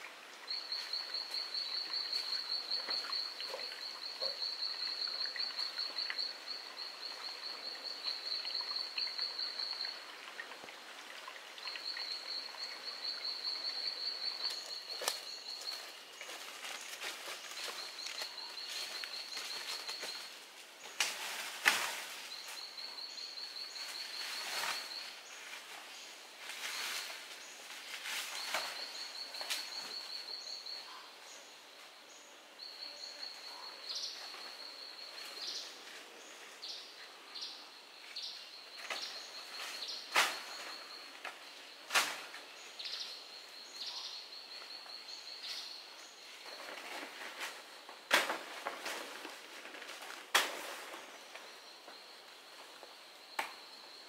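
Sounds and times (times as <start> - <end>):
rustling in leaf litter: 23.6 - 30.1.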